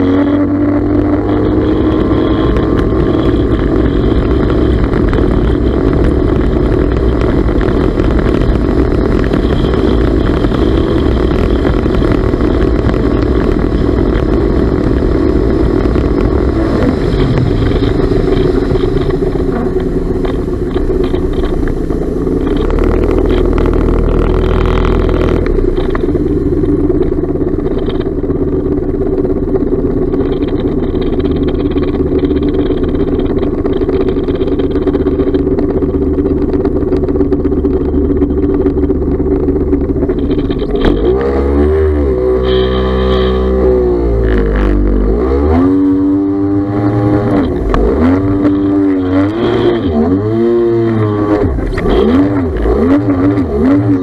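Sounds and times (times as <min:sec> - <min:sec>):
two-stroke watercraft engine running: 0:00.0 - 0:54.0
water spraying off hull: 0:00.6 - 0:40.8.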